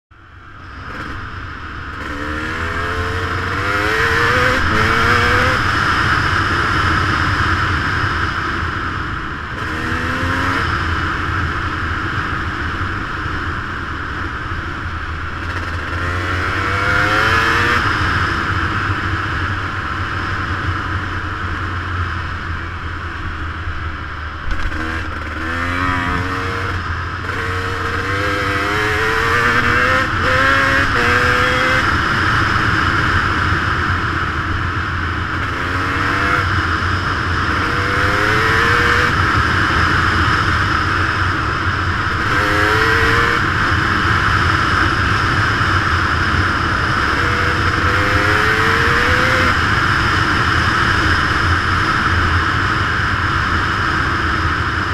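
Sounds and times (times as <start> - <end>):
dirt bike engine revving: 0.8 - 1.3, 1.9 - 7.1, 9.5 - 10.9, 15.4 - 18.3, 24.4 - 32.2, 35.2 - 50.9.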